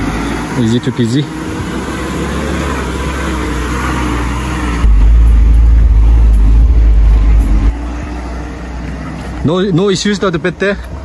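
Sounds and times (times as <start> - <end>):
car engine under load: 0.0 - 11.0
deep rumble inside car cabin: 4.8 - 8.1.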